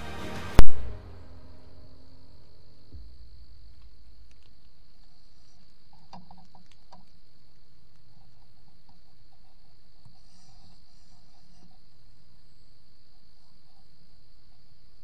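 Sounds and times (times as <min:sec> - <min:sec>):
crickets trilling: 0:01.0 - 0:15.0
faint clicks: 0:03.7 - 0:12.5.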